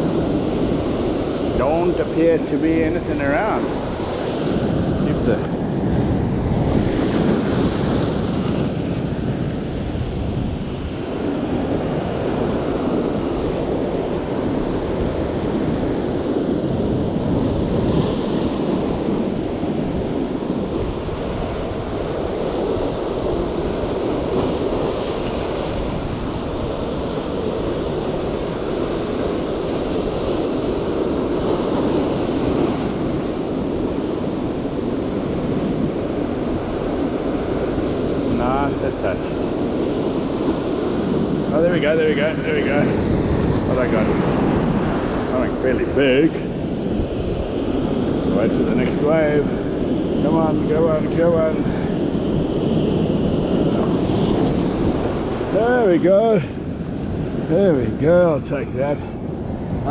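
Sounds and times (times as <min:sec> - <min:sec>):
ocean surf breaking on rocks: 0:00.0 - 0:59.9
wind buffeting microphone: 0:00.0 - 0:59.9.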